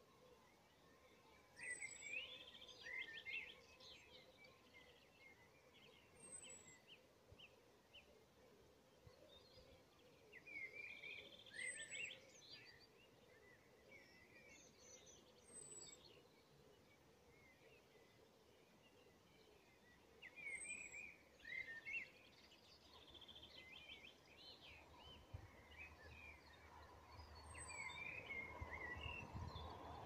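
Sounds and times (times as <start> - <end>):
faint background hiss: 0.0 - 30.0
songbird chirps and trills: 0.0 - 30.0.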